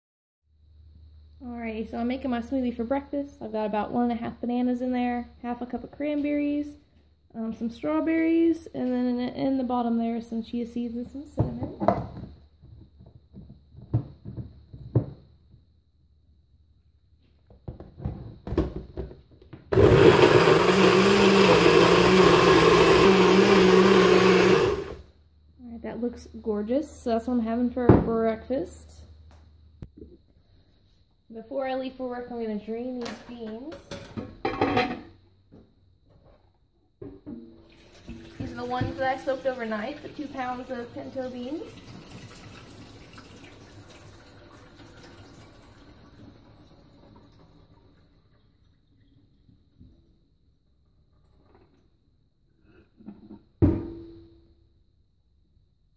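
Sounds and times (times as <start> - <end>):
blender motor running: 19.7 - 25.0
water pouring into a steel sink: 37.6 - 49.5.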